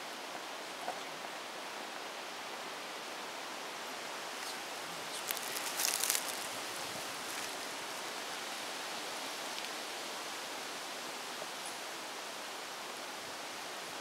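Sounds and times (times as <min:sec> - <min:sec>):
steady hiss: 0:00.0 - 0:14.0
crackling rustle of bag: 0:04.4 - 0:08.2.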